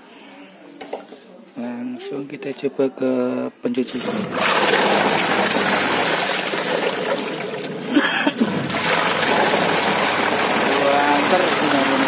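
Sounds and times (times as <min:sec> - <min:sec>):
washing machine water churning: 0:03.8 - 0:12.0.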